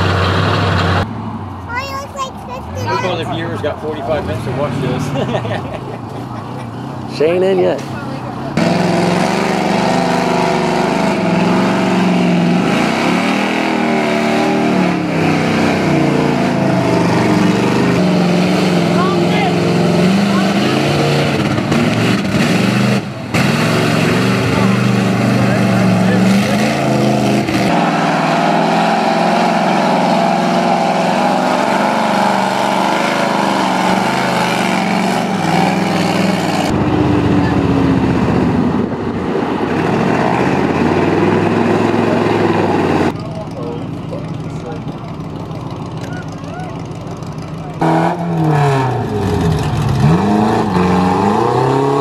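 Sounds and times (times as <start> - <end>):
tyres churning mud: 7.3 - 36.8
engine revving: 8.5 - 52.0.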